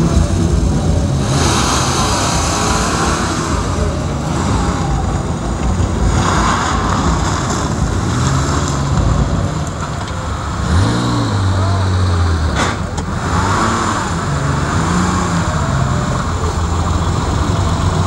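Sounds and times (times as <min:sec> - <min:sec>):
car engine revving hard: 0:00.0 - 0:18.0.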